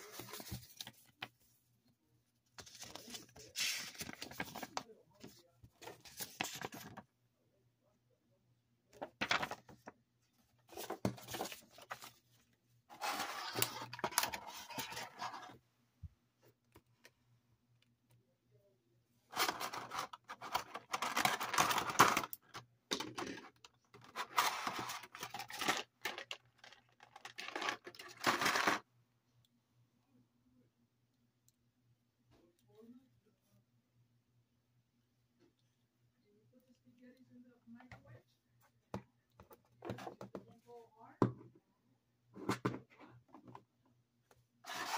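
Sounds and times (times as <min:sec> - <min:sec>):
paper rustling: 0:00.0 - 0:01.5, 0:02.6 - 0:07.0, 0:09.0 - 0:09.9, 0:10.6 - 0:15.6, 0:19.3 - 0:22.4, 0:23.1 - 0:28.8, 0:44.6 - 0:44.9.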